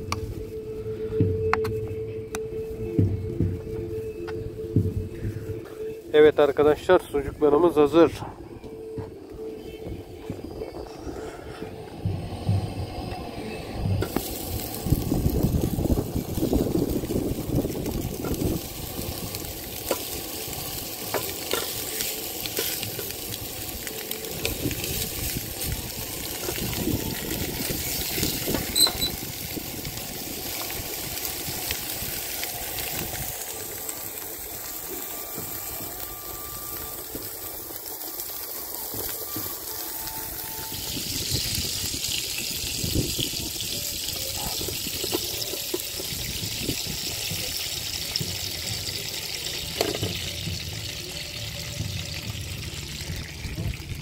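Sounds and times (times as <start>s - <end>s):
sausage sizzling in a pan: 13.4s - 54.0s.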